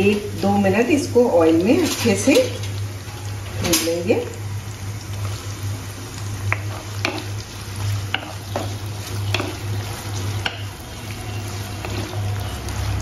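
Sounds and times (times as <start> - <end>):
food sizzling in hot oil: 0.0 - 13.0
spatula scraping pan: 6.6 - 12.7.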